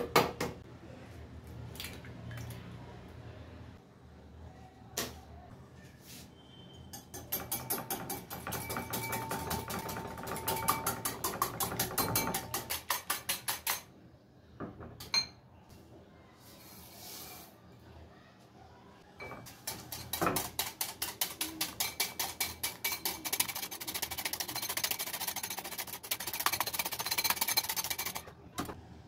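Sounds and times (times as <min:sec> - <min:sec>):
whisk clicking against glass bowl: 0:07.0 - 0:13.8, 0:19.2 - 0:28.2.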